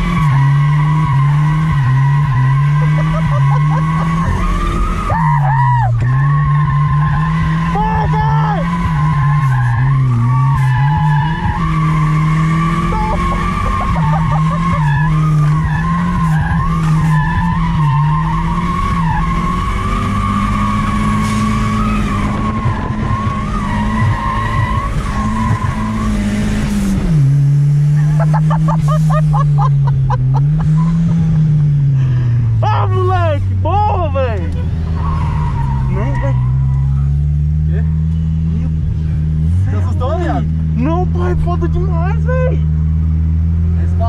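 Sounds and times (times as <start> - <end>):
tyres squealing: 0.0 - 26.5, 32.6 - 38.8
car engine revving: 0.0 - 44.0.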